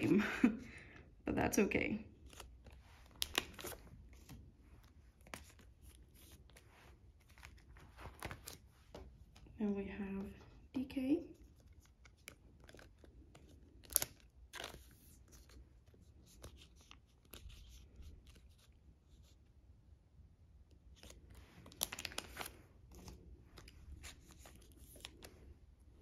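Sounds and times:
plastic sleeve crinkling: 2.2s - 9.5s, 20.9s - 25.5s.

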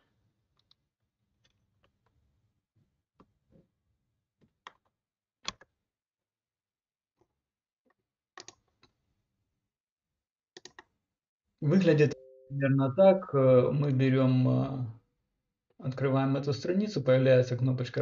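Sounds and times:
computer mouse and keyboard clicks: 8.4s - 9.0s, 10.6s - 10.9s.

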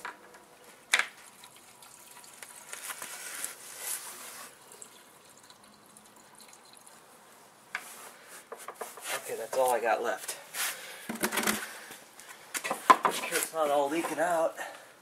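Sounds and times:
fuel pouring into a tank: 1.1s - 7.0s.

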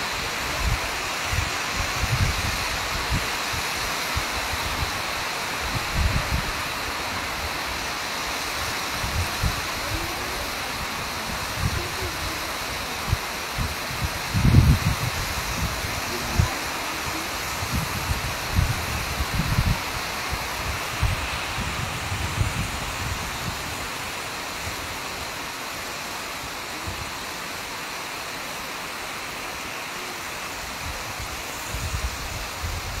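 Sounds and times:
heavy rain hissing: 0.0s - 33.0s
wind buffeting microphone: 0.5s - 3.7s, 13.0s - 24.0s.

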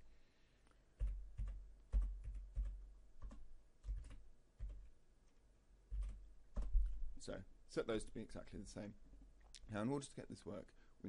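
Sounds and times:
computer keyboard typing: 1.0s - 4.9s, 5.9s - 6.9s.

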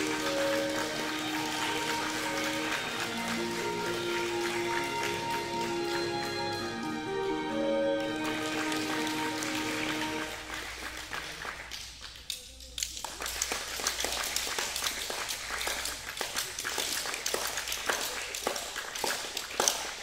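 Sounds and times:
sharp taps and claps: 8.0s - 20.0s.

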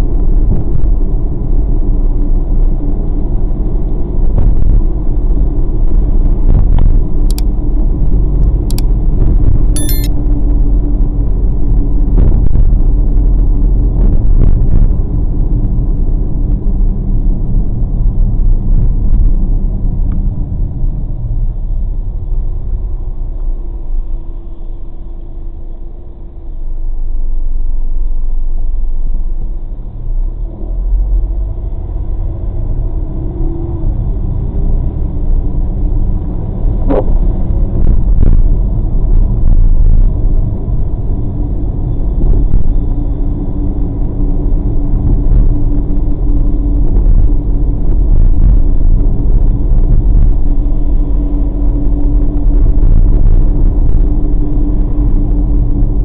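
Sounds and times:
car road noise rumble: 0.0s - 56.0s
sharp click: 9.8s - 10.1s.

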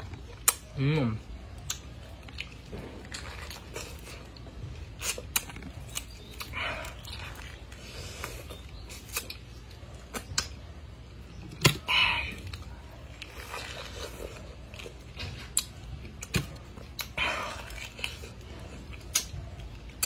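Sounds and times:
chewing: 0.0s - 20.0s
biting into pineapple rind: 0.1s - 10.7s.

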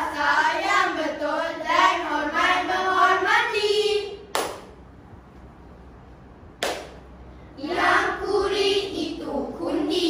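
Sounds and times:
children's choir chanting: 0.0s - 4.3s, 7.6s - 10.0s
group hand clap: 4.3s - 4.8s, 6.6s - 7.0s.

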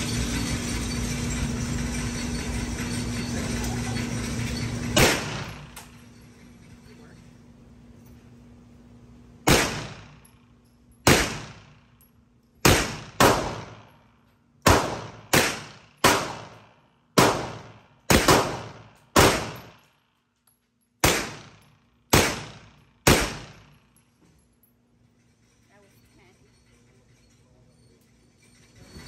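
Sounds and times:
carbine gunshots ringing: 5.0s - 5.8s, 9.5s - 10.3s, 11.0s - 11.8s, 12.6s - 13.9s, 14.6s - 19.8s, 21.0s - 23.8s.

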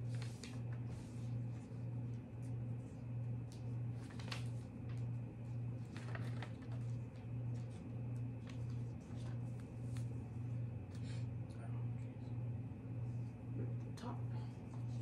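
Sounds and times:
paper rustling and crinkling: 0.0s - 10.2s.

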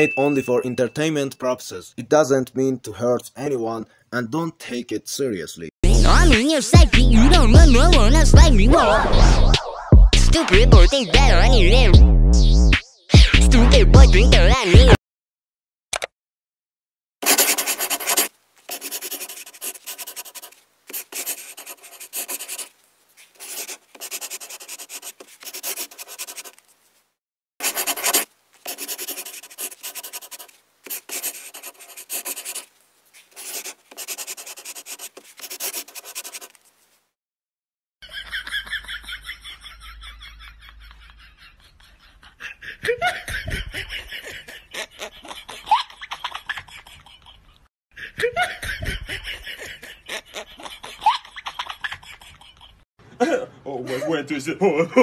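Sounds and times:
pencil scratching on paper: 17.2s - 26.7s, 27.6s - 36.7s
person giggling: 39.6s - 54.2s.

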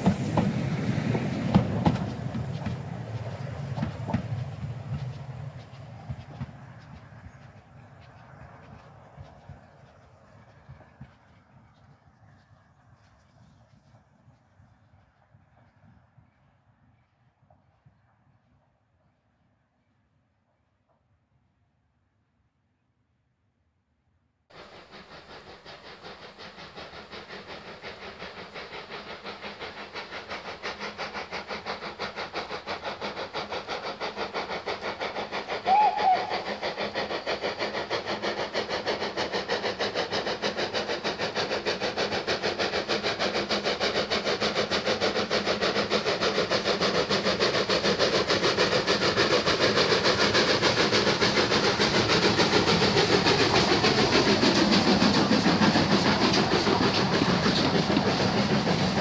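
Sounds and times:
steam locomotive exhaust beats: 0.0s - 18.7s, 24.5s - 59.0s
steam whistle: 35.6s - 36.6s.

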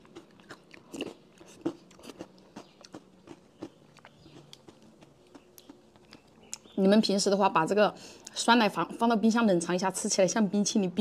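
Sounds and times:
wet chewing mouth sounds: 0.0s - 6.8s.

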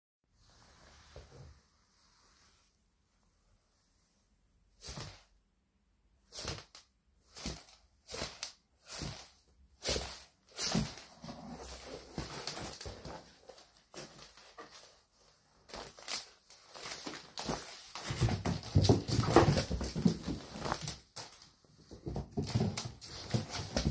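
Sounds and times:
cat rustling in cardboard box: 6.2s - 23.9s.

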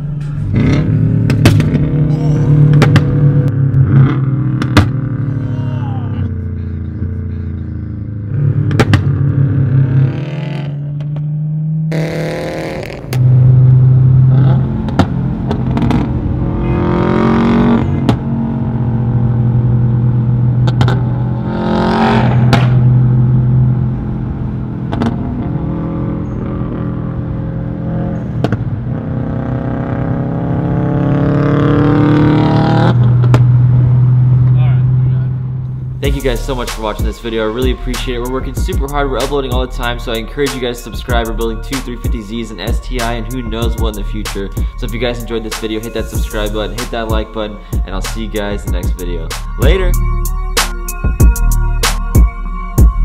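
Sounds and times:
car engine revving: 0.0s - 53.0s
exhaust cracks: 0.1s - 5.4s, 6.2s - 11.3s, 11.9s - 30.1s, 31.6s - 34.6s.

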